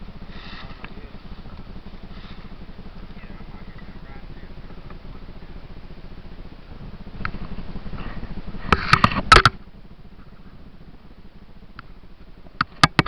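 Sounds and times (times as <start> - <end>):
dirt bike engine idling: 0.0 - 13.0.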